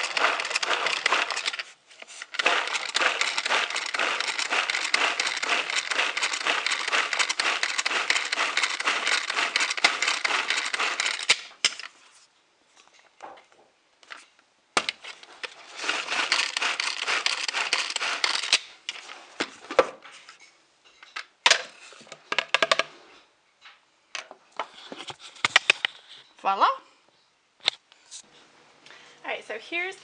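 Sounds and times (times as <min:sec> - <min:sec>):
hand-cranked food processor rattling: 0:00.0 - 0:11.5, 0:15.7 - 0:18.7.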